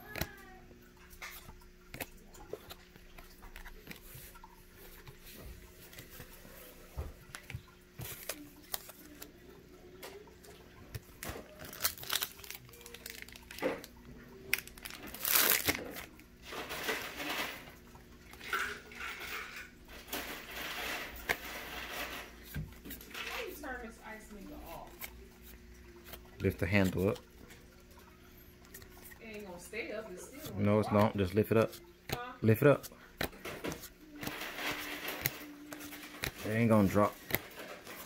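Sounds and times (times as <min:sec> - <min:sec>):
trading cards being flipped: 0:01.2 - 0:09.3, 0:10.9 - 0:16.2, 0:33.2 - 0:38.0
crinkly rustling: 0:01.2 - 0:27.2, 0:33.3 - 0:38.0.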